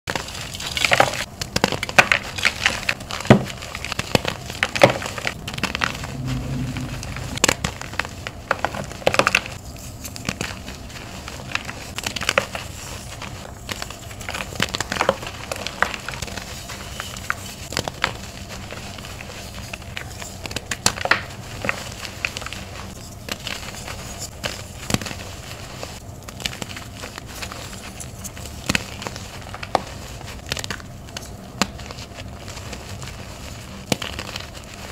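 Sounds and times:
powdery rustle: 9.7 - 34.9.

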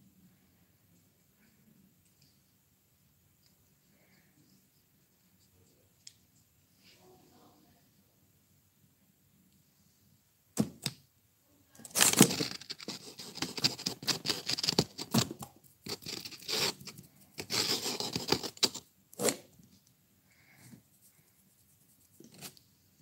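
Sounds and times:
scratching and rustling close up: 11.8 - 22.7.

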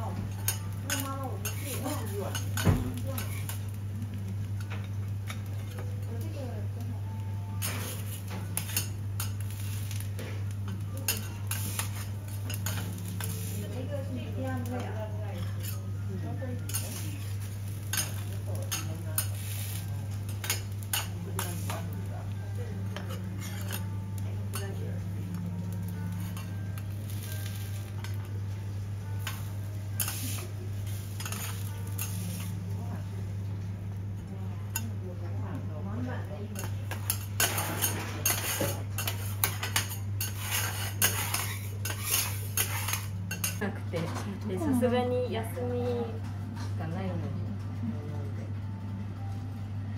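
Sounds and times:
food sizzling on a griddle: 0.0 - 33.0, 36.2 - 43.6
metal utensils clinking: 7.6 - 13.6, 16.6 - 22.0, 22.9 - 24.8, 29.2 - 32.6, 36.5 - 44.3.

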